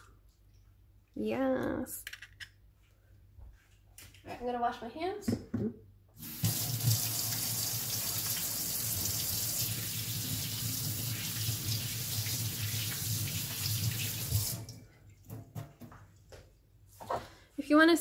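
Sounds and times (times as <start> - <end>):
tap water running: 6.2 - 14.8.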